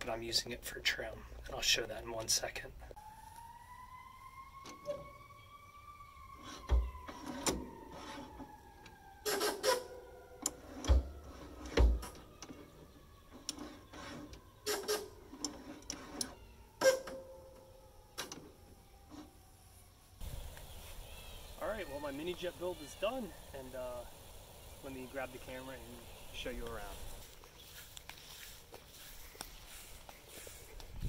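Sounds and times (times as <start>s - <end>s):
metallic clicks and clunks: 10.4s - 12.7s.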